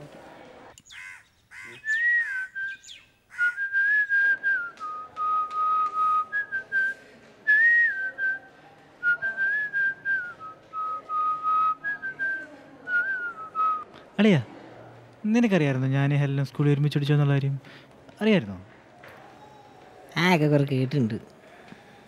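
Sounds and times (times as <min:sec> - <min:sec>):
person whistling a slow tune: 0:03.4 - 0:08.4.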